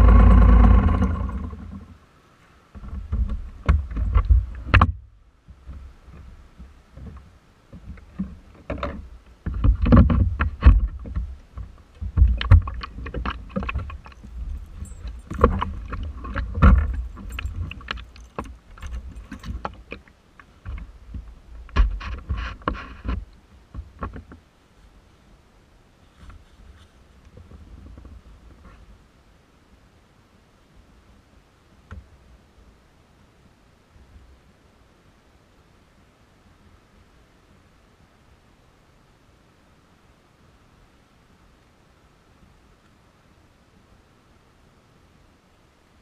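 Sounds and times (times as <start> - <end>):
scooter engine: 0.0 - 1.7
knocks and rattles: 2.8 - 24.4.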